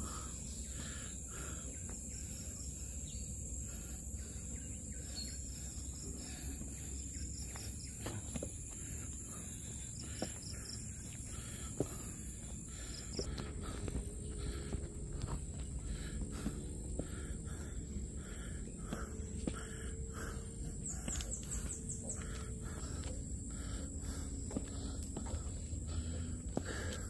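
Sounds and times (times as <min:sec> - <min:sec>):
insects chorus: 0:00.0 - 0:27.0
footsteps on concrete: 0:07.1 - 0:27.0.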